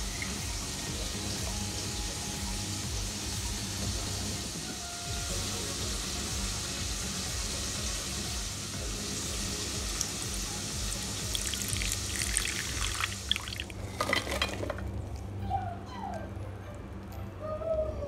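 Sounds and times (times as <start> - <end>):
skins sizzling in hot oil: 0.0 - 13.9.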